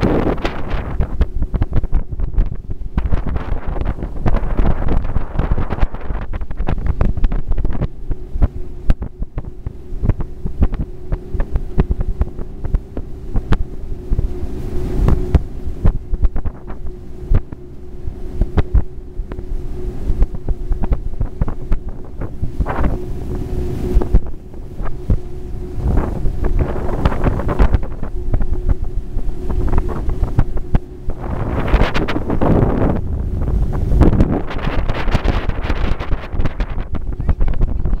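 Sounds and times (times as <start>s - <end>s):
boat motor humming: 0.0s - 38.0s
wind buffeting microphone: 0.0s - 38.0s.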